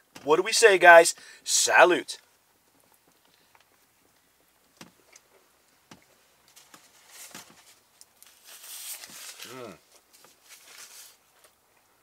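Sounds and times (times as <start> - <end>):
breathing: 1.2 - 1.5.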